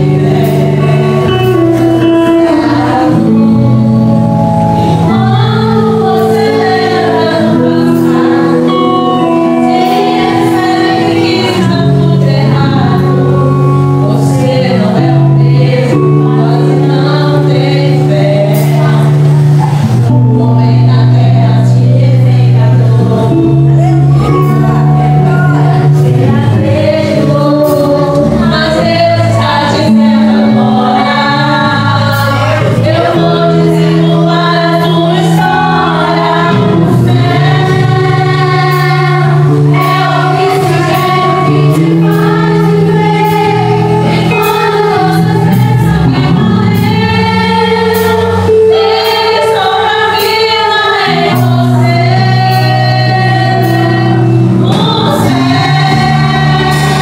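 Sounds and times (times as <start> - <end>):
instrumental accompaniment: 0.0 - 57.0
woman singing into microphone: 0.0 - 57.0.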